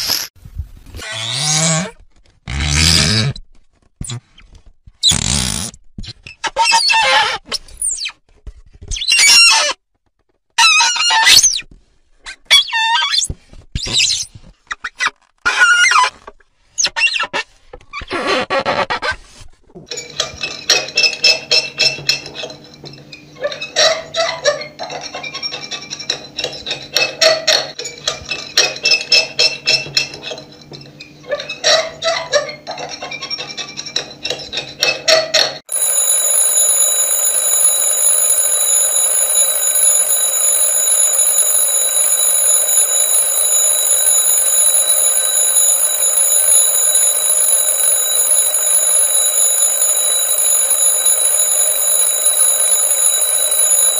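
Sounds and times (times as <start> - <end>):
alarm clock ringing: 35.7 - 53.9.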